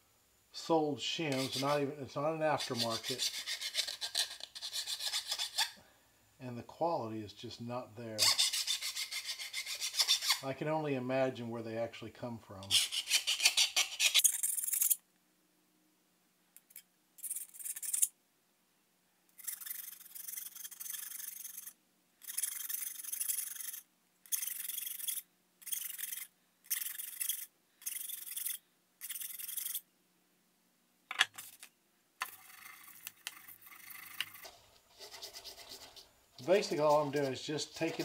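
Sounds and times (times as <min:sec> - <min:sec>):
metal rubbing on abrasive: 0:01.2 - 0:05.8, 0:08.2 - 0:10.5, 0:12.6 - 0:15.0, 0:31.4 - 0:38.0
file scraping steel edge: 0:01.3 - 0:01.9, 0:02.5 - 0:05.8, 0:08.2 - 0:10.4, 0:12.6 - 0:14.4, 0:33.6 - 0:38.0.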